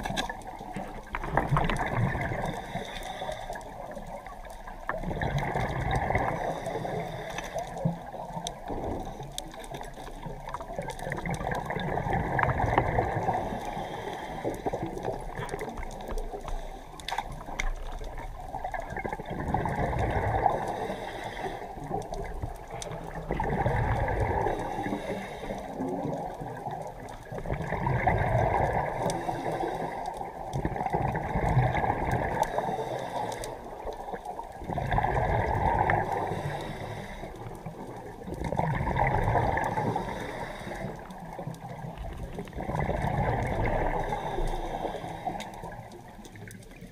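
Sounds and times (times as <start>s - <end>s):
exhaled bubbles gurgling: 0.0s - 46.9s
diver breathing through regulator: 2.2s - 4.0s, 5.5s - 8.2s, 11.7s - 17.4s, 20.0s - 22.1s, 24.0s - 26.2s, 28.3s - 30.3s, 31.7s - 37.8s, 39.4s - 41.5s, 42.6s - 46.1s.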